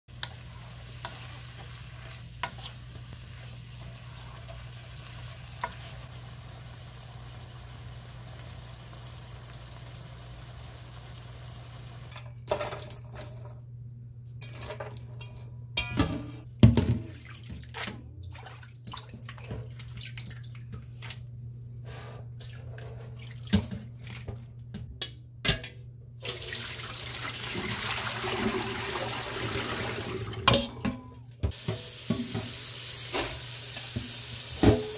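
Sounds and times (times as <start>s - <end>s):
water splashing in a bowl: 17.0s - 21.2s
tap water running: 26.2s - 34.9s.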